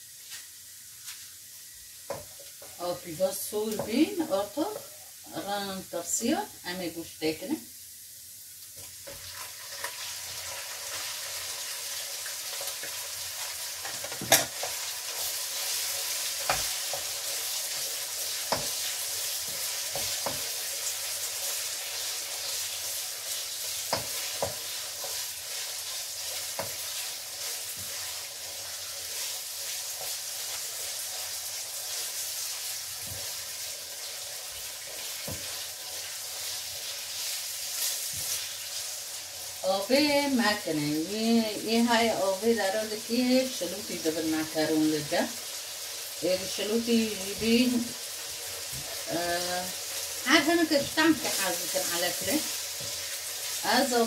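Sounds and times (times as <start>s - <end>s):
meat sizzling in a wok: 0.0s - 54.0s
spatula scraping a pan: 9.0s - 38.9s.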